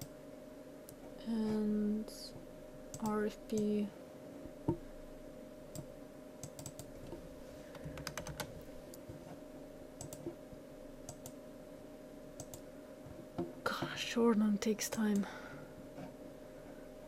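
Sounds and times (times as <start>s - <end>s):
steady low hum: 0.0s - 17.0s
computer mouse and keyboard clicks: 5.7s - 8.6s, 10.0s - 10.4s, 11.1s - 11.4s, 12.4s - 12.6s.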